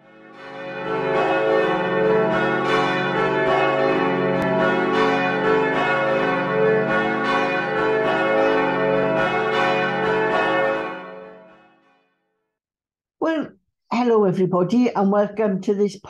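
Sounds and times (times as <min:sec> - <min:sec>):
church bells ringing: 0:00.0 - 0:11.9.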